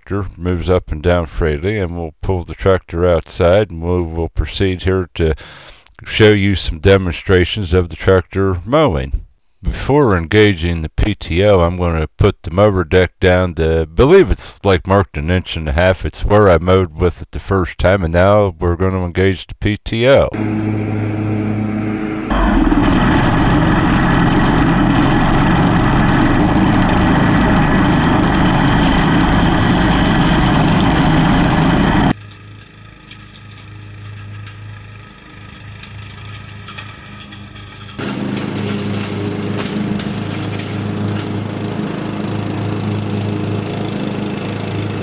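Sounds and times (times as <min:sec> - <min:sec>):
riding mower engine running: 0:20.3 - 0:45.0.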